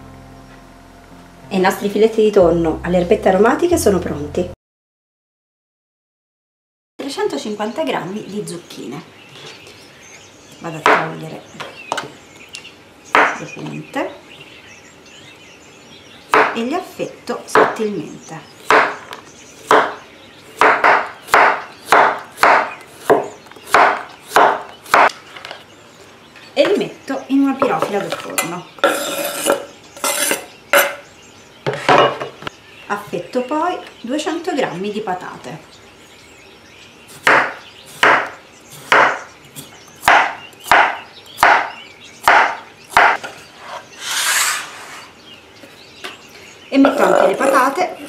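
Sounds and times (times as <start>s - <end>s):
knife chopping on cutting board: 18.6s - 19.0s, 19.7s - 20.0s, 20.6s - 25.1s, 37.2s - 43.3s
knife scraping: 28.8s - 31.0s, 43.6s - 45.2s.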